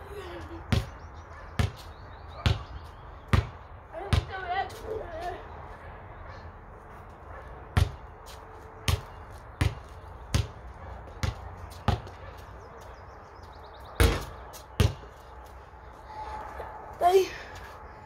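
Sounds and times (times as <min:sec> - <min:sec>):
basketball bouncing: 0:00.7 - 0:01.0, 0:01.6 - 0:01.8, 0:02.4 - 0:02.7, 0:03.3 - 0:04.4, 0:07.8 - 0:08.0, 0:08.8 - 0:12.2, 0:14.0 - 0:15.1.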